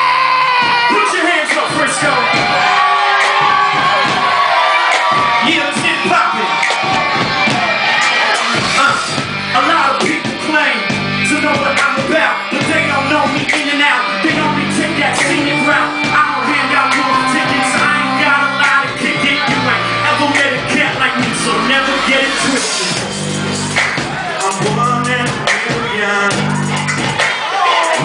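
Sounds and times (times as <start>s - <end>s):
bass notes: 0.0s - 27.3s
steady drum beat: 0.4s - 28.0s
lead vocalist singing: 8.8s - 23.0s, 24.3s - 26.5s.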